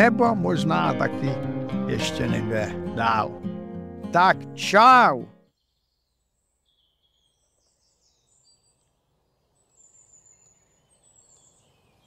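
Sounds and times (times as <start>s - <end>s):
faint high bird chirps: 5.4s - 12.0s.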